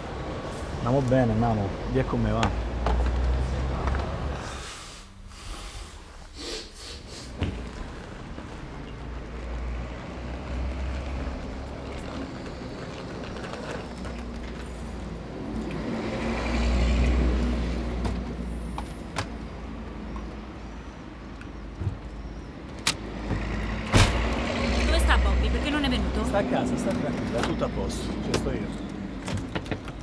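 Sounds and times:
traffic rumble: 0:00.0 - 0:30.0
vehicle passing close by: 0:15.3 - 0:18.5, 0:23.0 - 0:29.1.

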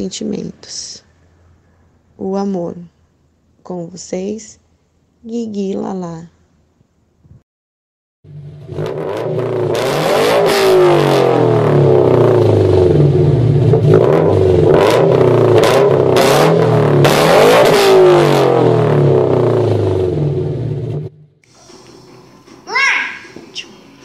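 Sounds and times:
cars speeding past: 0:08.3 - 0:21.0
car engines revving: 0:08.3 - 0:21.2.

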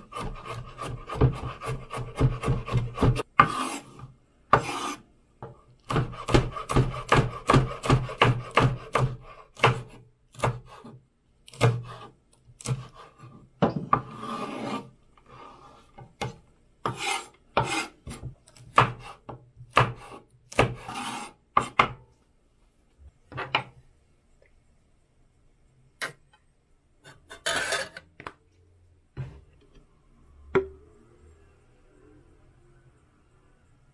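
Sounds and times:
knife chopping on wooden board: 0:00.0 - 0:03.9, 0:04.5 - 0:05.0, 0:05.9 - 0:13.0, 0:16.2 - 0:22.0.

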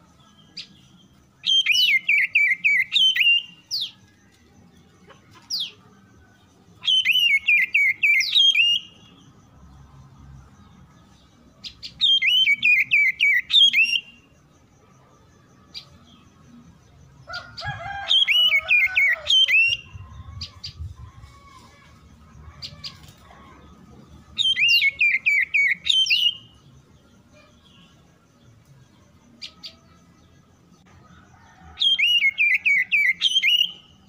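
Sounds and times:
bird singing whistled notes: 0:00.2 - 0:04.2, 0:06.8 - 0:09.4, 0:11.6 - 0:14.3, 0:18.0 - 0:21.5, 0:24.2 - 0:26.7, 0:31.8 - 0:34.0.

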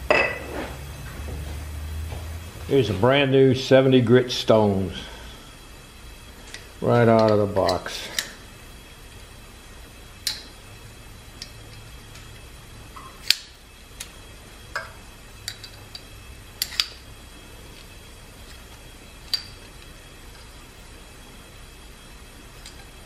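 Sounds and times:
low steady hum: 0:00.0 - 0:23.0
metal stones clicking together: 0:10.2 - 0:10.5.

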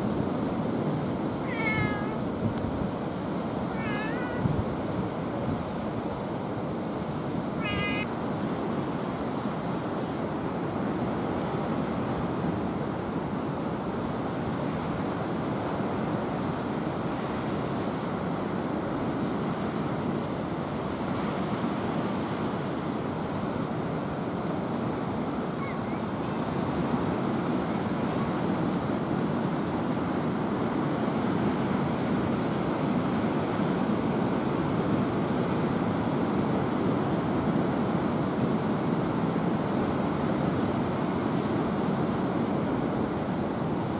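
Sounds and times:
cat meowing: 0:01.4 - 0:02.2, 0:03.7 - 0:04.6, 0:07.6 - 0:08.1.

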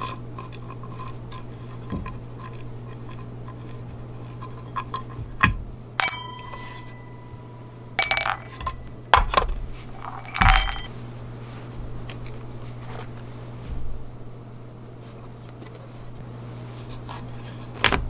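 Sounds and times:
steady low hum: 0:00.0 - 0:18.0
small parts clinking into metal tray: 0:06.0 - 0:07.4, 0:08.0 - 0:10.9.

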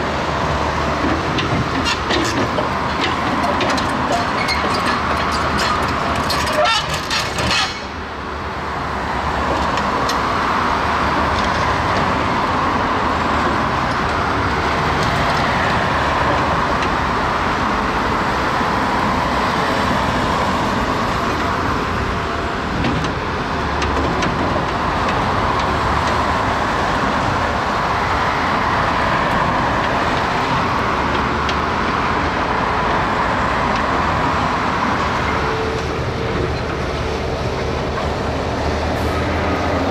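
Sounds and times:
road traffic passing: 0:00.0 - 0:39.9.

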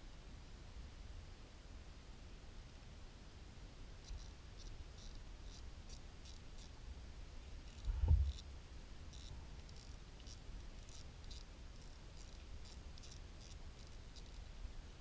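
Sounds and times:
low dull knock: 0:07.9 - 0:08.3
fishing reel clicking: 0:09.1 - 0:14.4.

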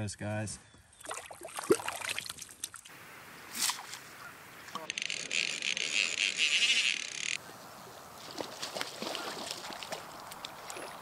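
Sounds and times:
small water splashes: 0:01.0 - 0:04.9, 0:08.0 - 0:11.0
fishing reel drag buzzing: 0:04.8 - 0:07.4.

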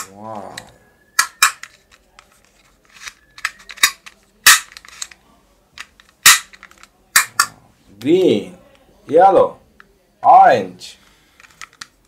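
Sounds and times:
toy pistol plastic clicks: 0:00.0 - 0:02.0, 0:03.0 - 0:05.2.

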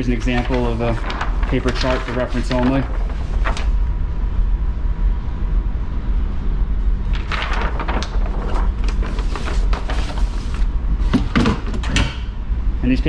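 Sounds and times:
paper chart rustling and scraping: 0:00.0 - 0:03.9, 0:07.1 - 0:11.6
steady low rumble: 0:00.0 - 0:11.1, 0:12.3 - 0:13.0
faint constant hum: 0:00.0 - 0:13.0.

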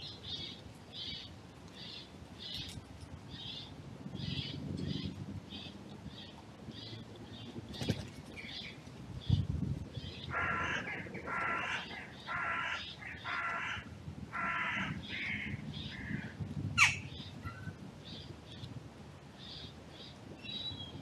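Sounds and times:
small birds chirping: 0:00.0 - 0:13.6
crow cawing: 0:10.3 - 0:17.0.

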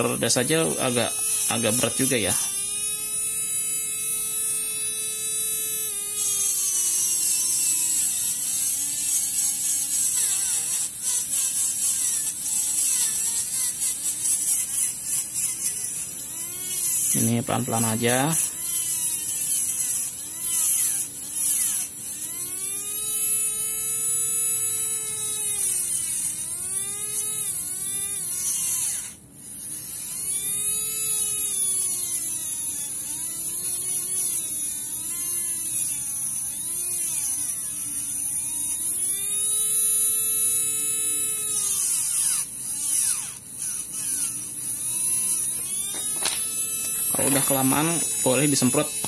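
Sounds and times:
electric motor whine: 0:00.0 - 0:49.0
file scraping gear: 0:41.5 - 0:49.0.

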